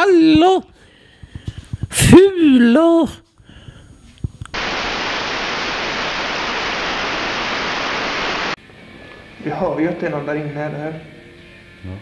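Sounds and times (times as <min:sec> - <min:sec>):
static hiss: 0:04.5 - 0:08.6.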